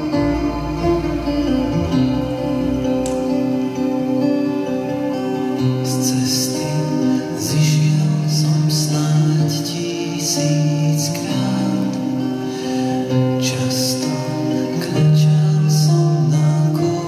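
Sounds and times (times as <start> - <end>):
sustained tones: 0.0 - 4.7
bright guitar strums: 0.0 - 5.9
acoustic guitar: 0.0 - 17.0.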